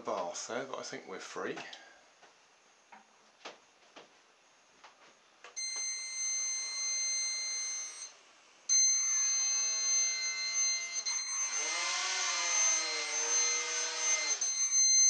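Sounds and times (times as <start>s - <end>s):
quadcopter motor whining: 8.8s - 15.0s.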